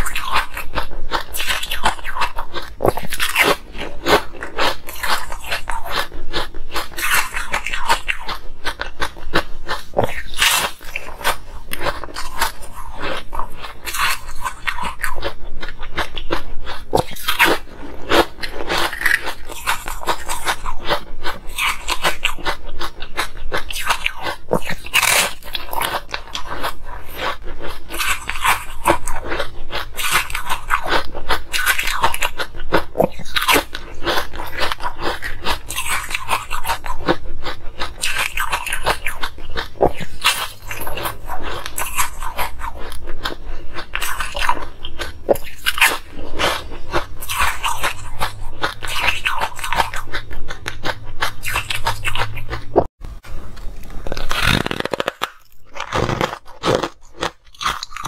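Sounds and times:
crunching hard ice: 54.2s - 58.0s.

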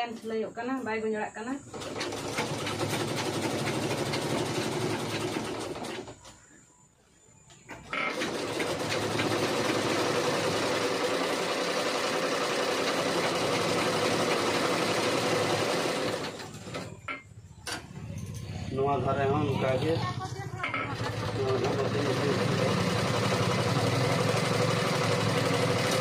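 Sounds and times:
sewing machines stitching: 1.7s - 6.3s, 7.9s - 17.1s, 20.6s - 26.0s.

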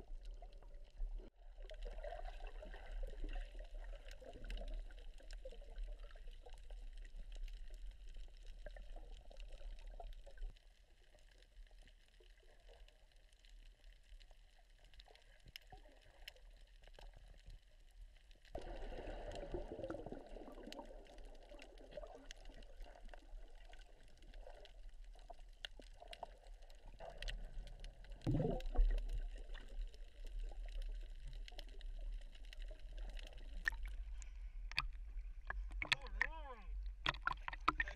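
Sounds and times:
muffled underwater noise: 33.0s - 37.9s.

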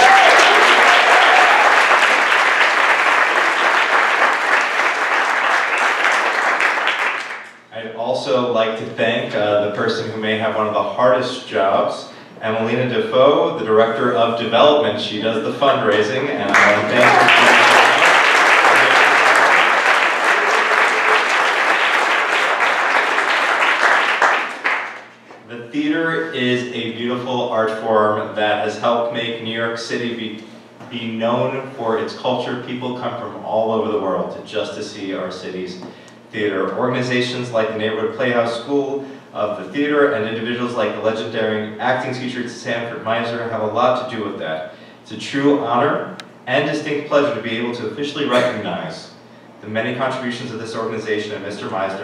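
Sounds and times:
audience applauding: 0.0s - 7.6s, 16.4s - 25.2s.

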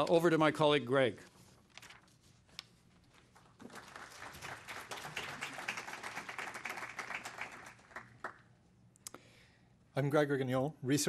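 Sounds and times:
audience applauding: 3.6s - 8.5s.

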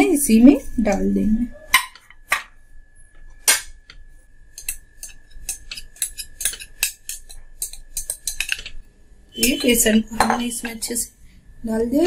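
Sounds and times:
spoon scraping a bowl: 4.5s - 11.0s
faint steady high tone: 9.3s - 12.0s.

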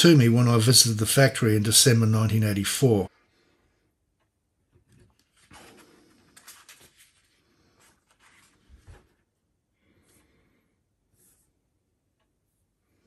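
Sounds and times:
page of paper turning: 4.9s - 9.3s.

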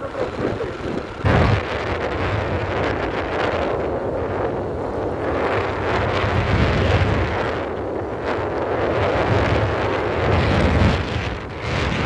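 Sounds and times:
motorcycle engine running: 0.0s - 6.0s
wind buffeting microphone: 0.0s - 12.0s.

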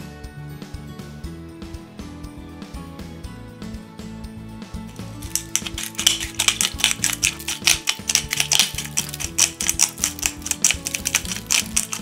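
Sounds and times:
salt grains ticking on foil: 4.9s - 12.0s.

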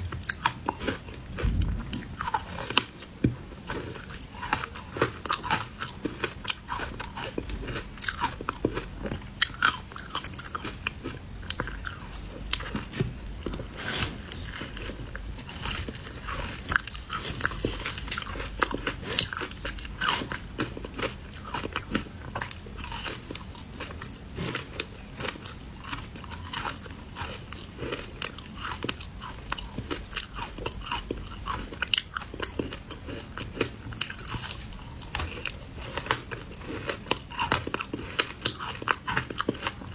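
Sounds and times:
ice crunching between teeth: 13.8s - 39.9s.

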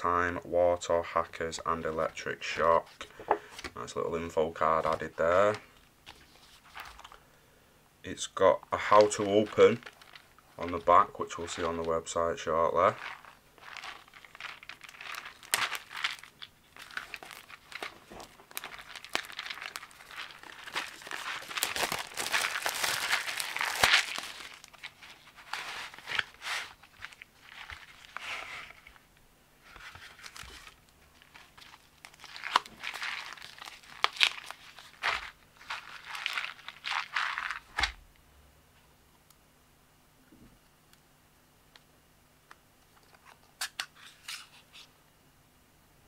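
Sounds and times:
packaging rustling and crinkling: 4.6s - 7.2s, 8.8s - 29.0s, 29.6s - 38.0s.

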